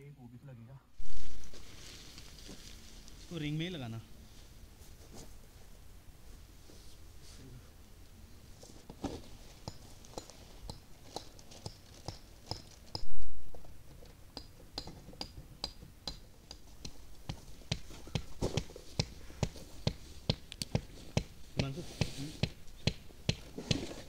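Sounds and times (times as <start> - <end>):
tent pitching clicks and taps: 8.9 - 24.0.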